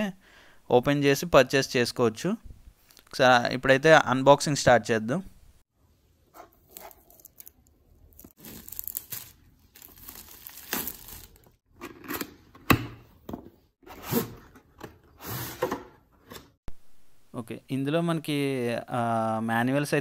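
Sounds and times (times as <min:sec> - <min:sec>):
plastic shrink wrap tearing: 0:06.7 - 0:11.6.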